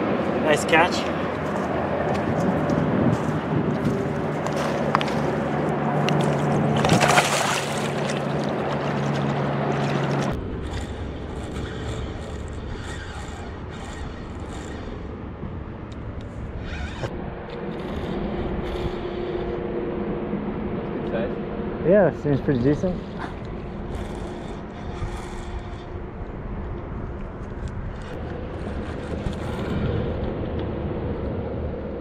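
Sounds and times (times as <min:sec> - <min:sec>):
low drone: 0:00.0 - 0:32.0
fish splashing in water: 0:06.2 - 0:11.9.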